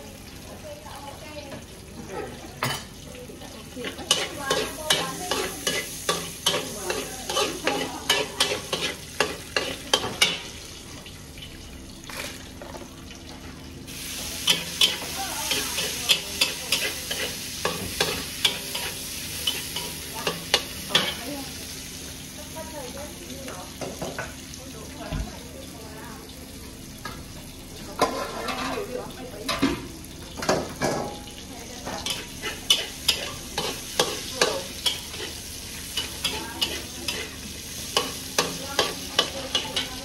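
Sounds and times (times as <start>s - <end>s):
food sizzling: 0.0s - 40.0s
spatula scraping a pan: 3.7s - 10.5s, 14.4s - 21.2s, 28.0s - 28.9s, 31.8s - 40.0s.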